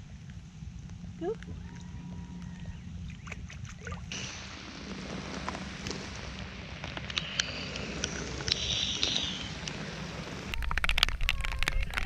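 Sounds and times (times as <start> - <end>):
raindrops ticking close by: 0.0 - 12.0
rain falling on lake and boat: 9.6 - 12.0.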